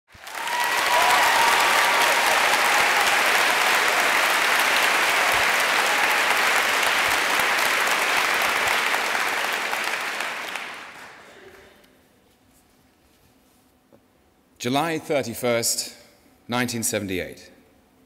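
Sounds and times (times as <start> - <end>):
audience applauding: 0.1 - 11.7.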